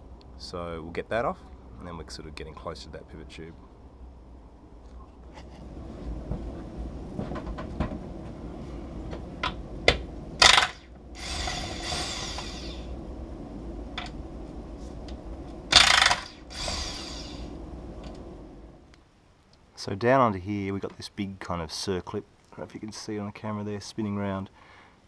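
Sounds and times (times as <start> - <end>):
cordless drill whirring: 10.4 - 12.8, 15.7 - 17.5.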